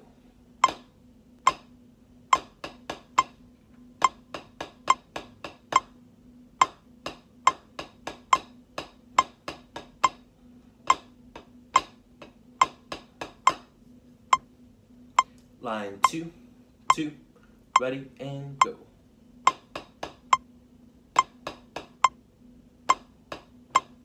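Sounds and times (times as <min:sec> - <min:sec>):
drumsticks tapping practice pad: 0:00.6 - 0:01.7, 0:02.3 - 0:03.4, 0:04.0 - 0:06.0, 0:06.6 - 0:13.7, 0:16.9 - 0:17.1, 0:19.4 - 0:20.5, 0:21.2 - 0:22.2, 0:22.8 - 0:24.0.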